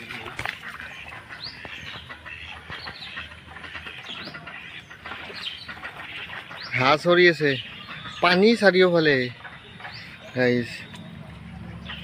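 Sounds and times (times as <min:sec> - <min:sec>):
ducks quacking: 0:00.0 - 0:12.0
small birds chirping: 0:00.0 - 0:12.0.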